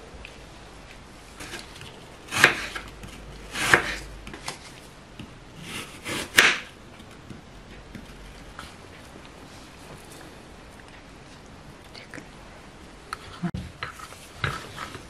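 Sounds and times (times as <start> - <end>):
knife slicing apple on board: 1.4 - 4.6, 5.6 - 6.7.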